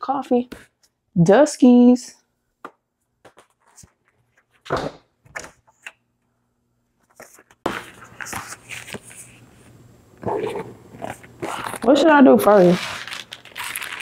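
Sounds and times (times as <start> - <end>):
grocery packages being handled: 11.0 - 14.0.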